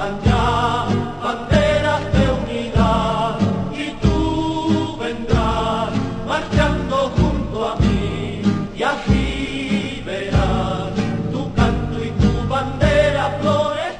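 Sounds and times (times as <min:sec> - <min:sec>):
heavy beat: 0:00.0 - 0:13.6
group singing marching song: 0:00.0 - 0:13.9.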